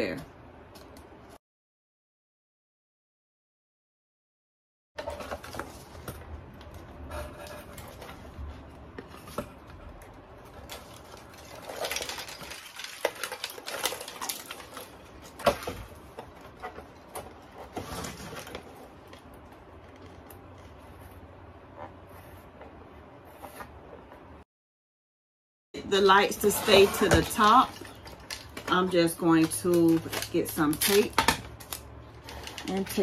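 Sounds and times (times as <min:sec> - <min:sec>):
boards and paper handled on table: 0:26.0 - 0:33.0.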